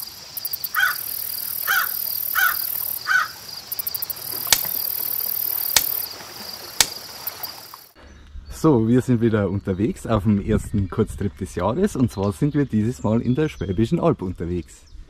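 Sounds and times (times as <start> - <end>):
crickets chirping: 0.0 - 8.0.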